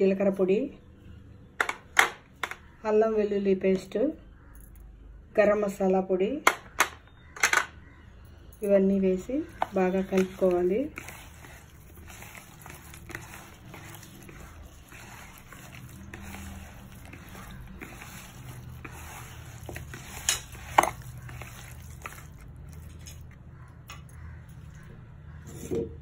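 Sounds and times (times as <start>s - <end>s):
hand squishing raw chicken: 9.6s - 23.4s.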